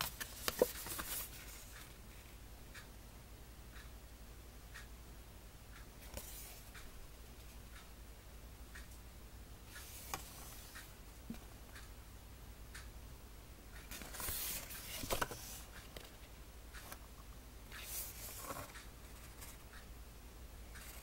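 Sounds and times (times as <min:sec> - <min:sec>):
booklet pages rustling: 0:00.0 - 0:02.0, 0:13.9 - 0:16.2, 0:17.8 - 0:19.6.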